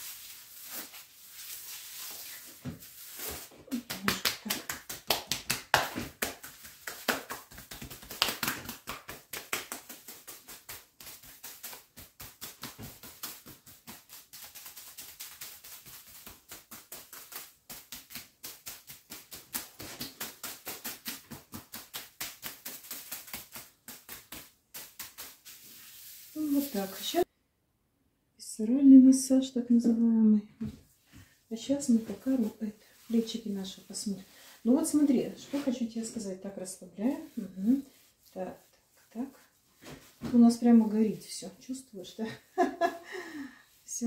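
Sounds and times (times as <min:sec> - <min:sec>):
hands patting on a back: 0:02.6 - 0:27.0.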